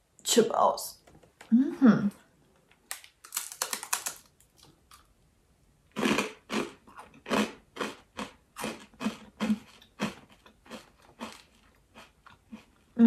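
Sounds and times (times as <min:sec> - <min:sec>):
person chewing crunchy chip: 0:03.0 - 0:05.1, 0:05.9 - 0:13.0.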